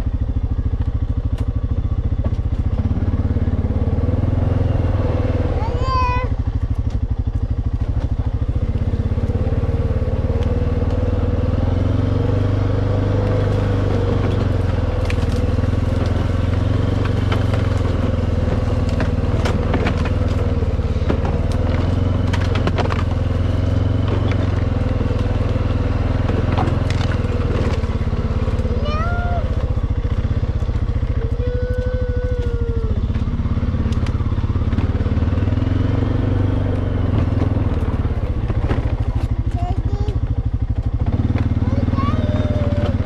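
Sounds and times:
atv engine running: 0:00.0 - 0:43.0
twigs snapping and scraping: 0:14.9 - 0:16.2, 0:21.1 - 0:27.9.

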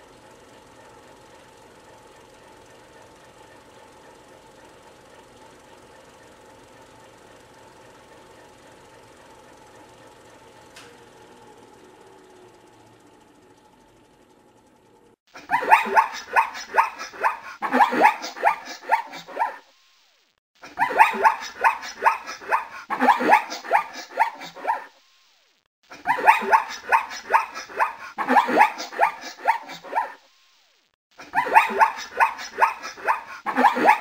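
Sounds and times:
dog barking: 0:15.4 - 0:19.6, 0:20.7 - 0:24.9, 0:26.0 - 0:30.2, 0:31.2 - 0:34.0.

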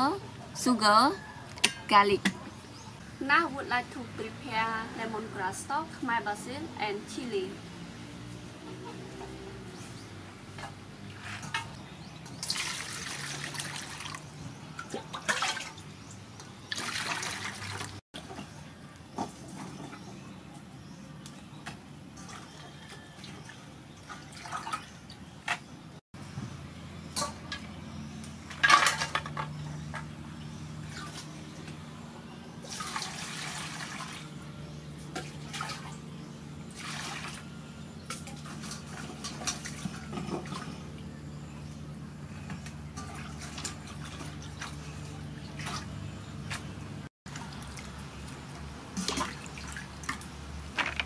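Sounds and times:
water splashing in a bowl: 0:10.6 - 0:18.4, 0:21.7 - 0:25.2, 0:32.6 - 0:34.4, 0:35.0 - 0:36.0, 0:36.6 - 0:40.8, 0:43.0 - 0:50.9
water pouring from a dipper: 0:12.3 - 0:15.8.

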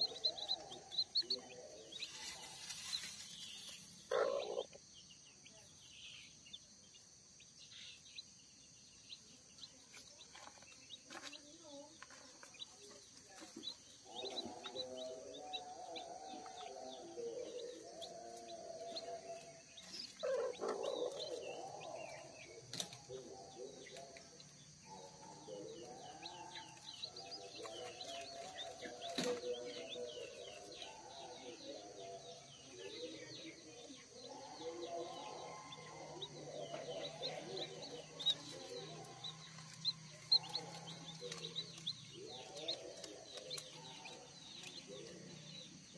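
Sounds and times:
chicks peeping: 0:00.0 - 0:45.9.

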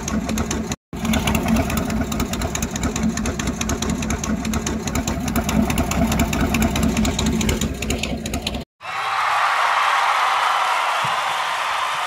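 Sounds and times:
engine idling: 0:00.0 - 0:08.6.

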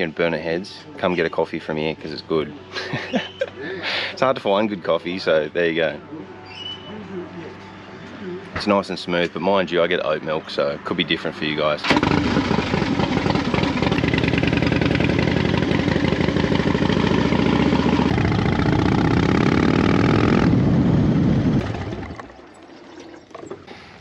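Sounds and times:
motorcycle engine revving: 0:11.8 - 0:22.3.

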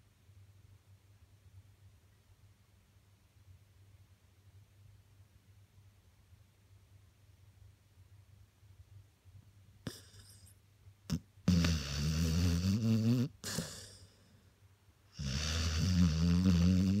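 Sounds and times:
dog snoring: 0:09.9 - 0:10.5, 0:11.1 - 0:14.2, 0:15.1 - 0:17.0
dog snuffles: 0:09.9 - 0:10.5, 0:11.1 - 0:14.2.

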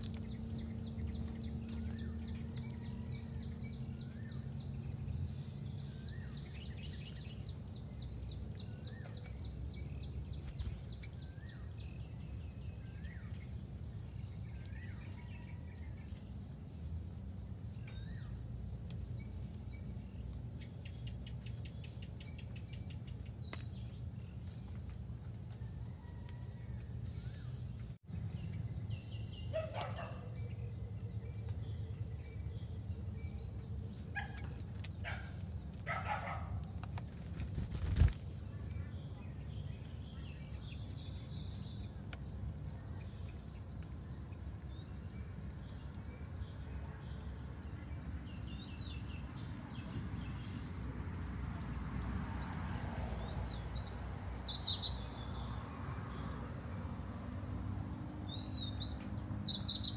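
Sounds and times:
birds chirping: 0:00.0 - 0:26.4, 0:27.2 - 0:59.9.

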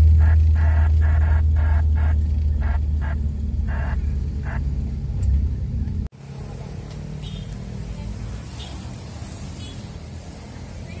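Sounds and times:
quiet steady rumble: 0:00.0 - 0:06.1
car engine and road rumble: 0:00.0 - 0:11.0.

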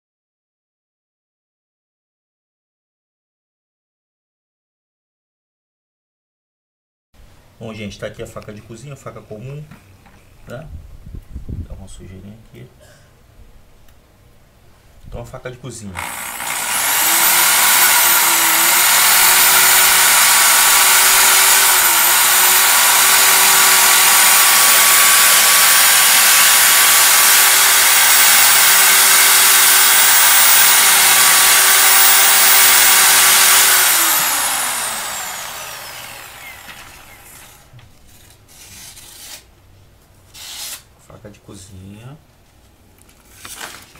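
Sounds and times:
electric drill motor whining: 0:16.0 - 0:37.8.

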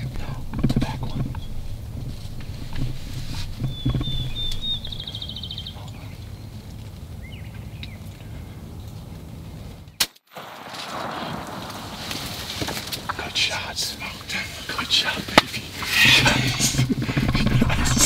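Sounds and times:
small bird chirping: 0:00.0 - 0:06.5
shotgun shot: 0:10.0 - 0:13.2.

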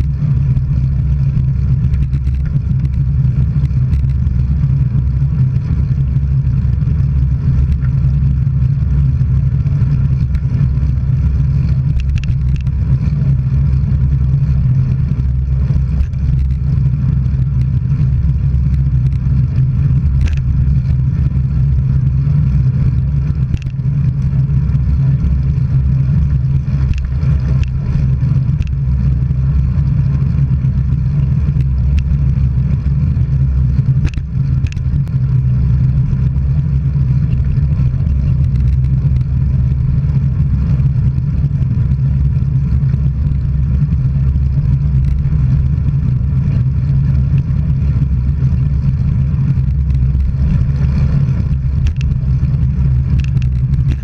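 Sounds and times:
road noise: 0:00.0 - 0:54.0
wind rumble on microphone: 0:00.0 - 0:54.0
sharp clicks: 0:20.1 - 0:20.5, 0:34.0 - 0:35.2, 0:49.6 - 0:54.0.

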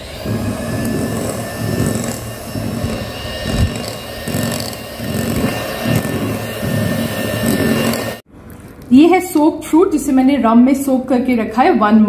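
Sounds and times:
beaters churning thick batter: 0:00.0 - 0:08.2
electric hand mixer whining: 0:00.0 - 0:08.2.

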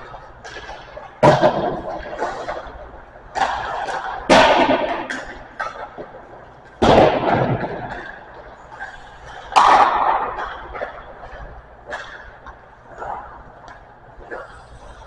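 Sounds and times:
hockey pucks cracking: 0:00.0 - 0:14.6.

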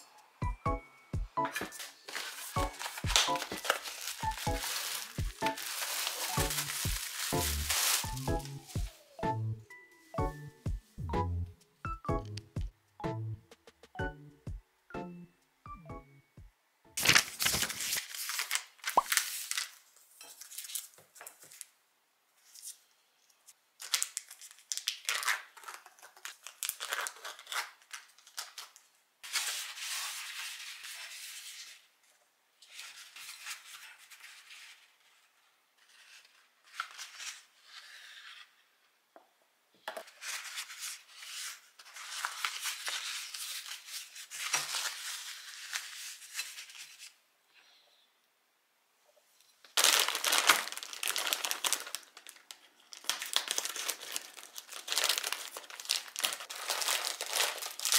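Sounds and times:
kitchen paper rustling: 0:01.5 - 0:09.2, 0:17.0 - 0:21.8, 0:23.8 - 0:38.6, 0:40.0 - 0:47.2, 0:49.7 - 0:57.9
plastic packaging crinkling: 0:01.5 - 0:09.2, 0:17.0 - 0:21.7, 0:23.8 - 0:31.0, 0:40.2 - 0:47.2, 0:49.7 - 0:57.9.

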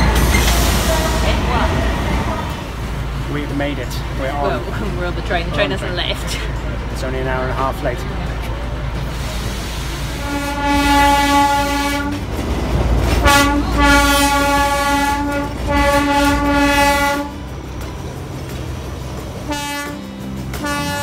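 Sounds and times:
rumble and clatter of moving train: 0:00.0 - 0:21.0
train horn blasts: 0:10.1 - 0:12.3, 0:13.2 - 0:17.5, 0:19.4 - 0:21.0.

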